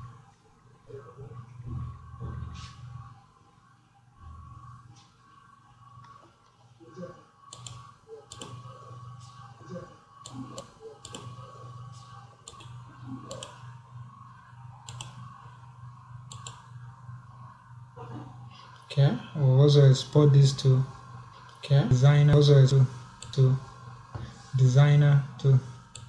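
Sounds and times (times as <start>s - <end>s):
low electrical hum: 0.0s - 26.0s
computer mouse clicks: 7.5s - 8.7s, 10.2s - 11.5s, 12.4s - 13.6s, 14.8s - 15.3s, 16.3s - 16.7s.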